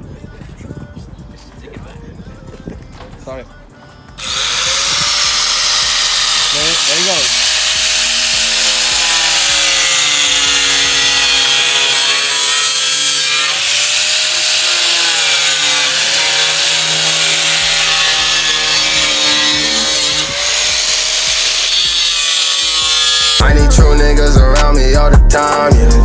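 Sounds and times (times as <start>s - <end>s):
music: 0.0s - 20.3s, 22.2s - 26.0s
power tool cutting metal panel: 4.2s - 23.4s.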